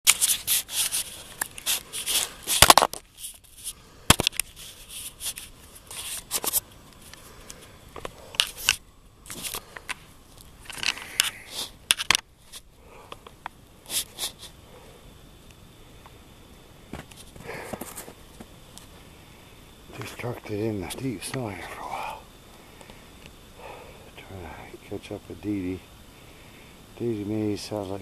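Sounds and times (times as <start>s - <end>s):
twigs and brush scraping: 0.1s - 12.7s.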